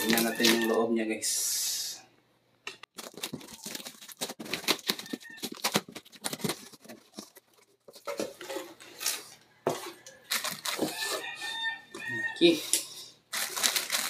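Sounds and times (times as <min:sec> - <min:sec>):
plastic wrapping rustling: 0:00.0 - 0:00.8, 0:02.9 - 0:09.4, 0:10.0 - 0:11.4, 0:13.3 - 0:14.0
cardboard flaps folding: 0:03.0 - 0:08.3.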